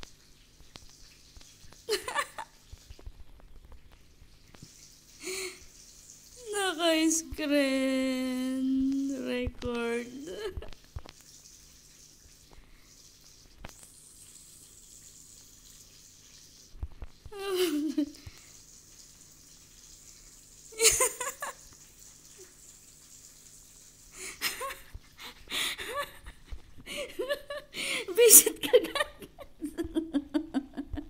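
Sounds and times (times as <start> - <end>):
person giggling: 1.9 - 2.5, 17.4 - 18.2, 20.8 - 21.6, 24.3 - 31.0
person laughing: 1.9 - 2.5, 17.4 - 18.2, 20.8 - 21.6, 24.2 - 31.0.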